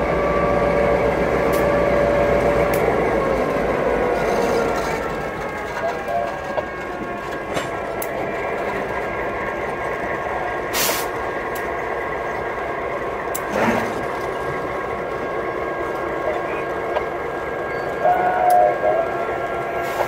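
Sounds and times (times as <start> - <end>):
diesel locomotive engines running: 0.0 - 20.0
short hissing bursts: 10.7 - 11.1.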